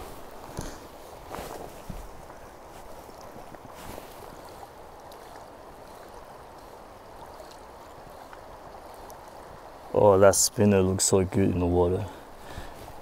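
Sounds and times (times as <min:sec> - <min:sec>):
river rushing: 0:00.0 - 0:13.0.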